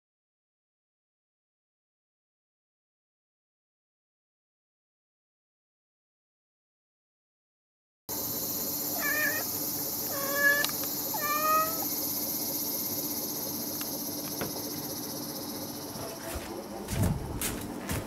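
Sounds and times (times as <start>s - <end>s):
steady high-pitched hiss: 8.1s - 15.9s
kitten meowing: 8.9s - 9.5s, 10.1s - 11.9s.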